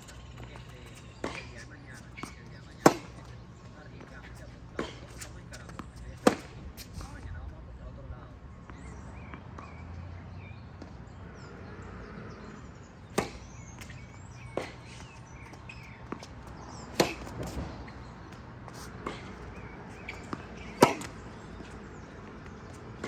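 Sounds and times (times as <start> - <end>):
tennis ball bouncing: 0.0 - 6.9, 13.0 - 23.0
tennis ball struck by racquet: 1.2 - 3.2, 4.8 - 6.6, 13.1 - 23.0.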